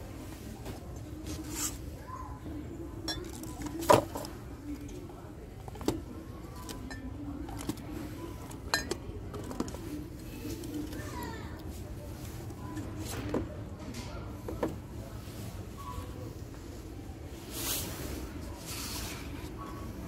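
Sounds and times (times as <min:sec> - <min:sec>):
ceramic mugs clinking: 0:03.0 - 0:04.0, 0:06.6 - 0:07.8, 0:08.4 - 0:09.7.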